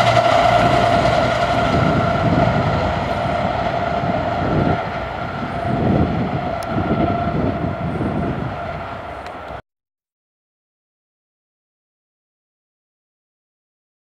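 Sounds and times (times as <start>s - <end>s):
steady high-pitched tone: 0.0s - 9.6s
train wheels rumbling on rails: 0.0s - 9.6s.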